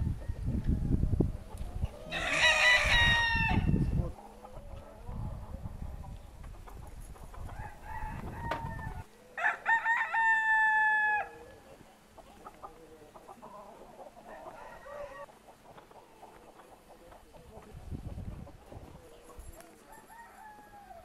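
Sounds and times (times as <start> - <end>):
rooster crowing: 2.1 - 3.8, 7.5 - 11.4, 14.2 - 15.3, 19.9 - 21.0.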